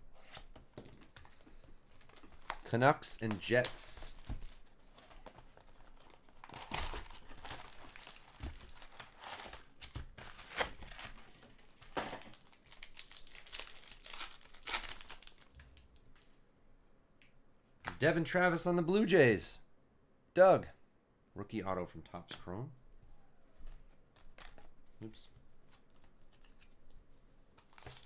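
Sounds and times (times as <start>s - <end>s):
foil wrappers crinkling and tearing: 3.4s - 15.8s, 27.6s - 28.0s.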